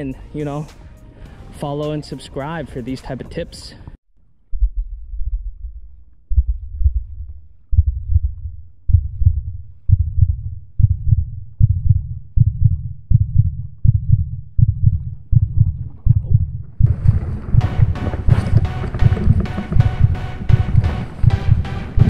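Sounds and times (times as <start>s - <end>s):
music: 0.0s - 3.9s, 16.9s - 22.0s
heartbeat thumps: 4.5s - 22.0s.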